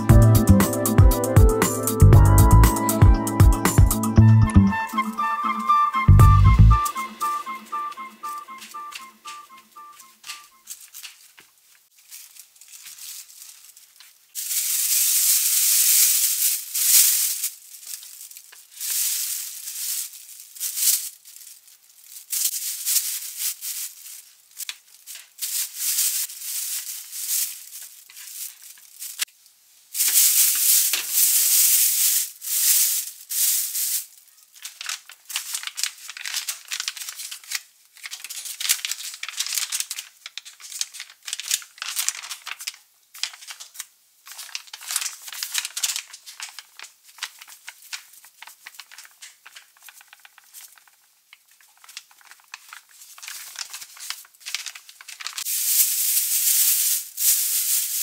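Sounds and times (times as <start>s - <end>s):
paper towel rustling: 6.8s - 29.2s, 44.3s - 58.0s
plastic bag crinkling: 6.8s - 29.4s, 30.0s - 58.0s.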